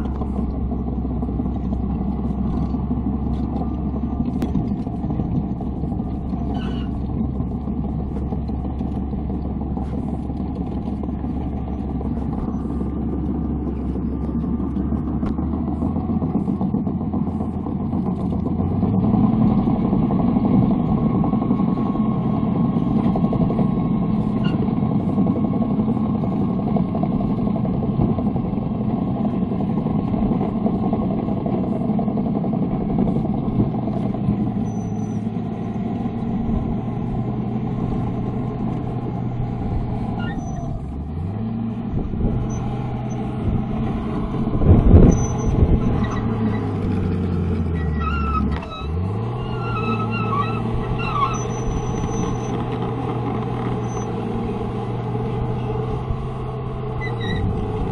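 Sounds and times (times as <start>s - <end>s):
bulldozer diesel engine running: 0.0s - 57.9s.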